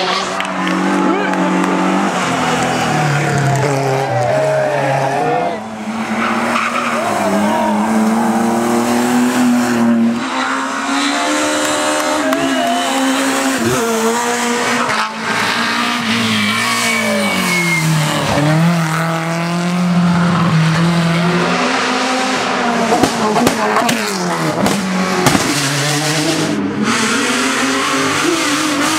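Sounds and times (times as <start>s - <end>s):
racing car engines at high revs: 0.0s - 28.9s
tyre squeals: 16.0s - 18.5s.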